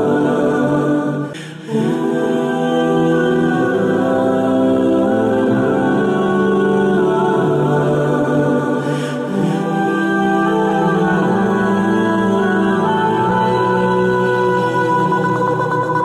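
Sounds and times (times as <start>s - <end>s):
music with long held chords: 0.0s - 16.0s.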